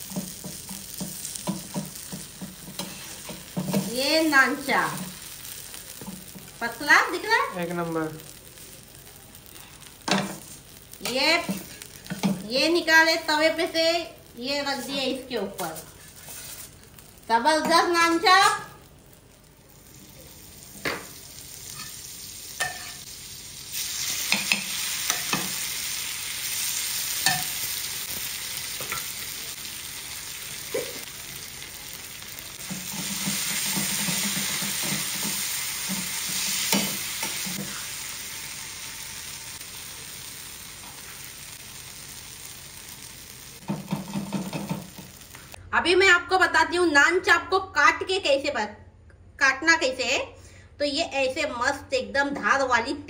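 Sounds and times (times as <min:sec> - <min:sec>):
meat sizzling in butter: 0:00.0 - 0:45.6
metal spatula scraping griddle: 0:02.6 - 0:03.9, 0:15.7 - 0:16.8.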